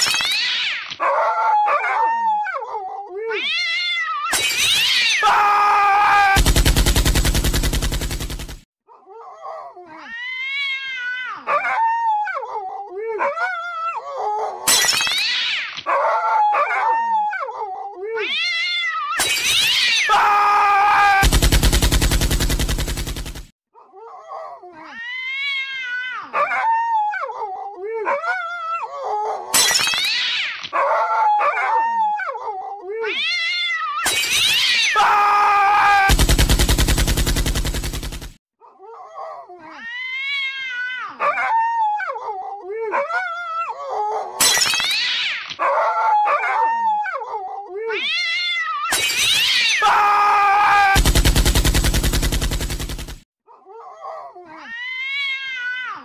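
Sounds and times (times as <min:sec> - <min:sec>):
cats meowing and yowling: 0:00.0 - 0:06.4, 0:09.9 - 0:21.2, 0:24.8 - 0:36.1, 0:39.6 - 0:51.0, 0:54.5 - 0:56.0.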